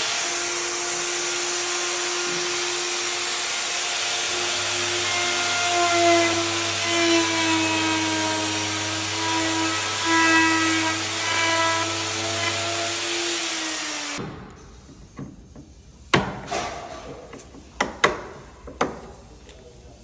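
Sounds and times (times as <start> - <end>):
electric router whining: 0.0 - 14.2.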